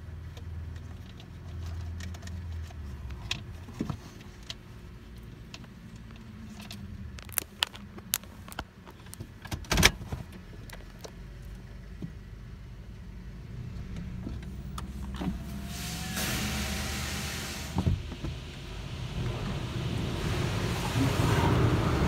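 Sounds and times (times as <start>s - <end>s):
car humming: 2.6s - 22.0s
water spray hissing: 15.4s - 17.8s.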